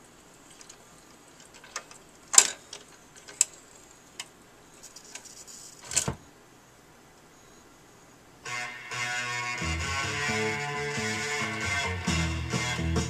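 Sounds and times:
record changer mechanical clicks: 0.4s - 6.2s.

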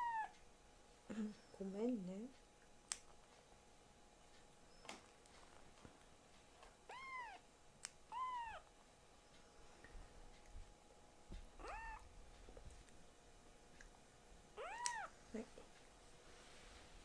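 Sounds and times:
kitten mewing: 0.0s - 0.3s, 6.9s - 7.4s, 8.1s - 8.7s, 11.6s - 12.0s, 14.6s - 15.1s.

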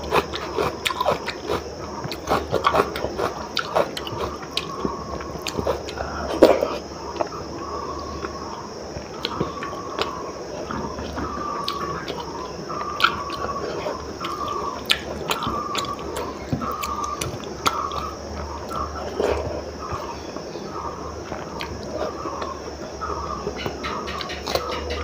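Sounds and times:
wet chewing and lip-smacking: 0.0s - 6.1s.

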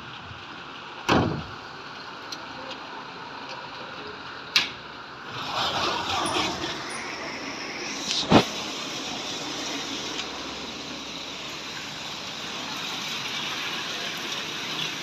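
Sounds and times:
car tyres swishing on wet road: 5.2s - 15.0s.

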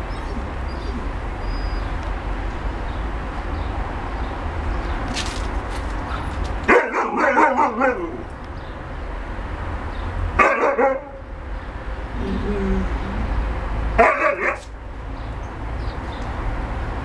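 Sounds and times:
dog barking: 6.7s - 8.2s, 10.4s - 11.2s, 14.0s - 14.7s.

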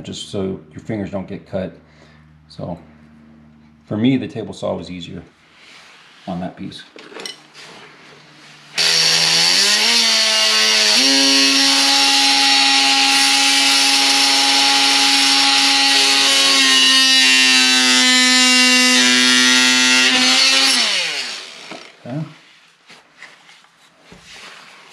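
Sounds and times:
power saw cutting wood: 8.7s - 22.0s.

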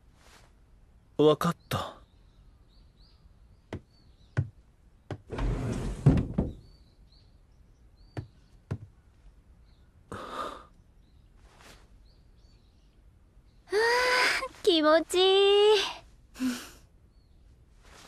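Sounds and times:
faint chirping: 1.0s - 18.0s
door knocking shut: 5.1s - 6.6s
sliding door on track: 5.3s - 6.6s.

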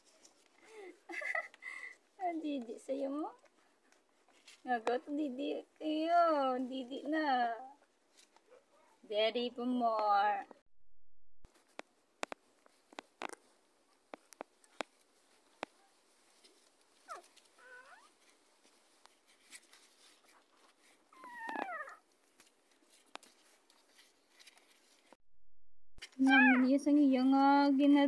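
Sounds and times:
puppy whine: 17.0s - 18.2s, 21.1s - 22.1s, 26.2s - 26.7s
puppy squeak: 21.2s - 22.0s, 26.2s - 26.7s
puppies whimpering: 26.2s - 26.7s.

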